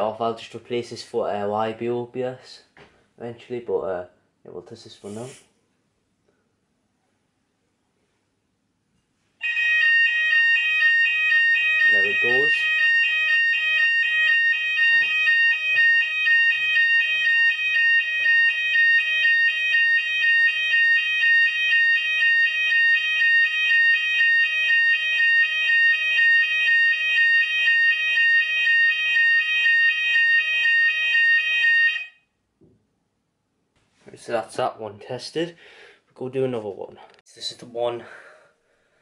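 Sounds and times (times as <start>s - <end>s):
fire alarm pulsing tone: 9.4s - 32.3s
fire alarm steady high tone: 9.4s - 32.3s.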